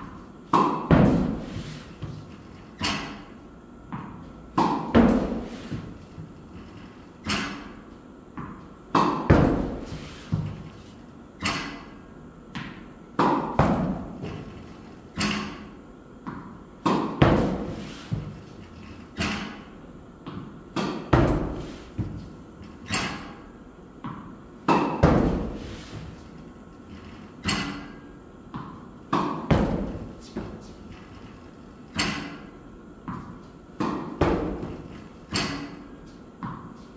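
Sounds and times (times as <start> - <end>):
tennis ball bouncing: 0.0 - 2.2, 3.9 - 6.0, 8.3 - 10.6, 12.5 - 14.2, 16.2 - 18.4, 20.2 - 22.2, 24.0 - 26.0, 27.5 - 30.7, 33.0 - 35.8, 36.4 - 36.9
racket hitting tennis ball: 0.0 - 6.3, 7.2 - 14.5, 15.1 - 26.4, 27.4 - 30.8, 31.9 - 36.9.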